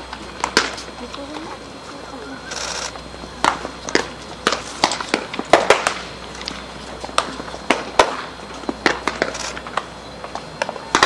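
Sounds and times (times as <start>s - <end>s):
baseballs smacking into gloves: 3.4s - 11.0s.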